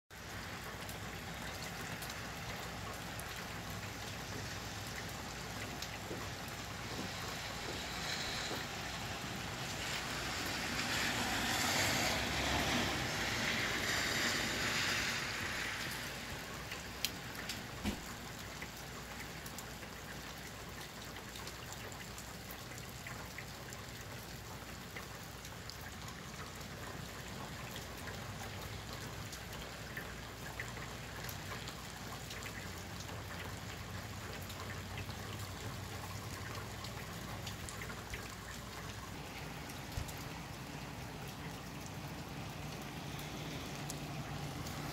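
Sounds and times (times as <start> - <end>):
steady rain falling: 0.1 - 44.9.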